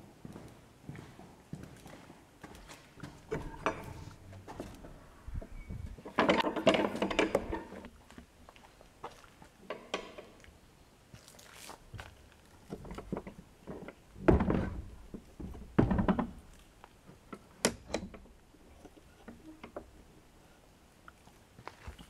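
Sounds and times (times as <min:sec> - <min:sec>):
wooden door thudding in frame: 0:14.2 - 0:16.4.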